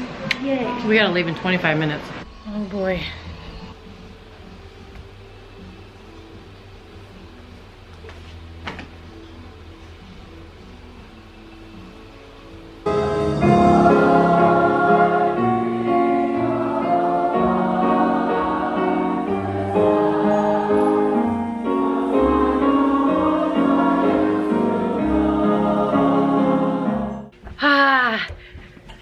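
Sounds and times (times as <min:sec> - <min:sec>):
musical accompaniment: 0:12.6 - 0:27.3
choir singing held chords: 0:12.8 - 0:27.3.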